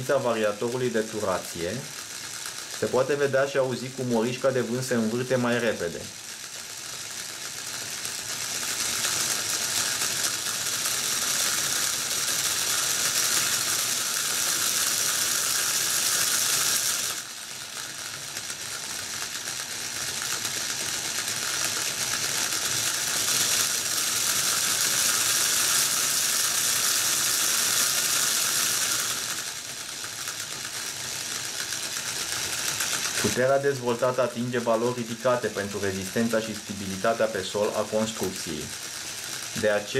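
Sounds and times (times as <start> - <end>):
electric motor whirring: 8.5 - 17.3, 19.7 - 39.9.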